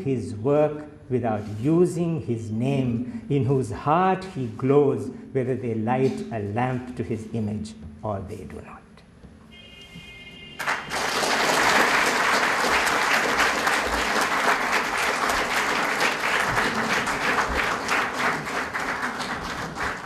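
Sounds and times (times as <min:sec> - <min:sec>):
audience clapping: 0:10.6 - 0:20.0.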